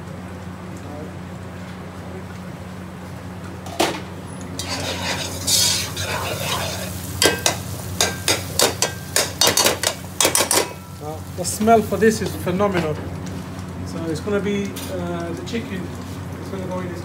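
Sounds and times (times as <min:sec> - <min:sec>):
food sizzling in a pot: 0:04.4 - 0:16.4
metal spoon scraping a pot: 0:04.6 - 0:07.4
spoon clinking against a pot: 0:06.1 - 0:11.0.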